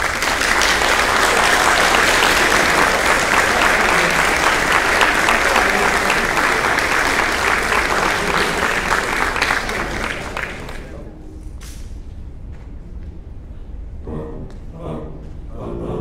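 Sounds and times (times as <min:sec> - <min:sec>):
large audience clapping: 0:00.0 - 0:11.1.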